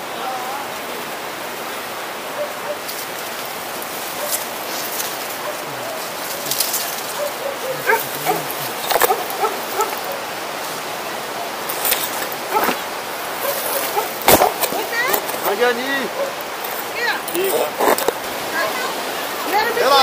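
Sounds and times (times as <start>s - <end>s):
leaves rustling: 0.0s - 20.0s
twigs crackling and snapping: 4.2s - 10.1s, 11.7s - 15.6s
short calls: 4.2s - 10.3s, 11.7s - 18.9s.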